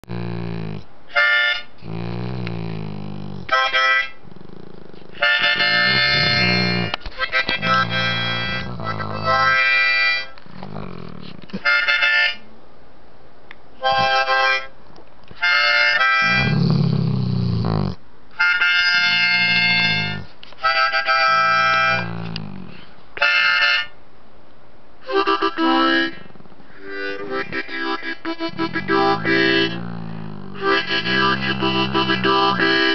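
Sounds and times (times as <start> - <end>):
dog howling: 4.3 - 9.7, 16.2 - 18.0, 18.9 - 20.3, 21.3 - 22.8, 28.4 - 32.9
harmonica playing chords: 5.1 - 10.8, 18.4 - 22.3, 25.0 - 32.9.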